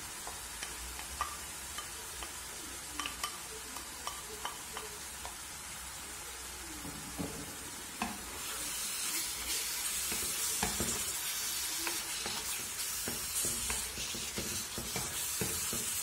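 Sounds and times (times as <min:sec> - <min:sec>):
meat and onions sizzling in pan: 0:00.0 - 0:16.0
spatula scraping and knocking pan: 0:09.4 - 0:16.0.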